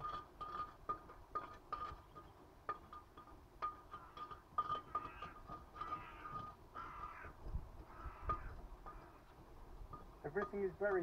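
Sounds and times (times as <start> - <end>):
steel tool clinking on crucible: 0.0 - 6.6
scraping: 0.0 - 11.0.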